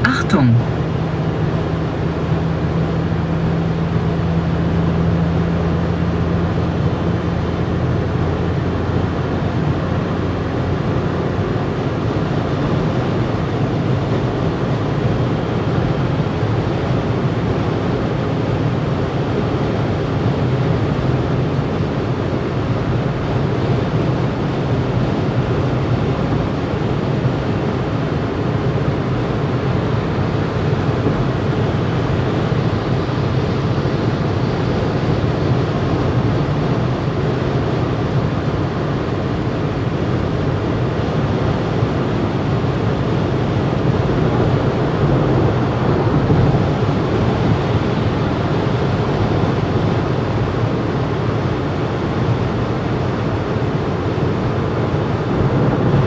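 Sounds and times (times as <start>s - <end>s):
car engine drone: 0.0s - 56.0s
road and wind noise: 0.0s - 56.0s.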